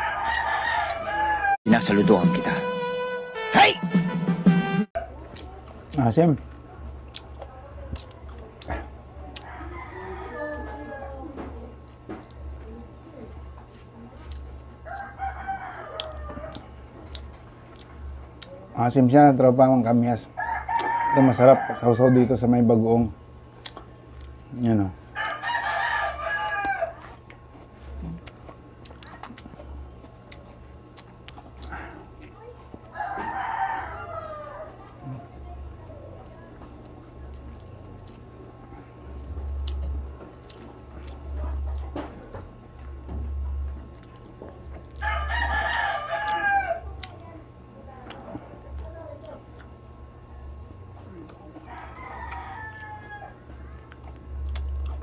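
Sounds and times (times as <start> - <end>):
rooster crowing: 0.0 - 1.6, 9.4 - 11.4, 14.8 - 16.7, 20.4 - 22.5, 25.1 - 27.1, 32.9 - 34.9, 45.0 - 46.9, 51.6 - 53.9
steady low hum: 0.0 - 55.0
eating clicks and smacks: 5.2 - 10.7, 14.2 - 15.2, 15.9 - 18.6, 23.6 - 24.4, 28.1 - 32.9, 36.2 - 43.1, 43.7 - 45.1, 47.0 - 47.2, 48.0 - 49.8, 53.5 - 55.0
crisp fruit being bitten and chewed: 5.2 - 10.8, 13.3 - 18.6, 23.5 - 25.4, 26.1 - 35.4, 36.2 - 47.3, 48.0 - 49.8, 50.8 - 55.0.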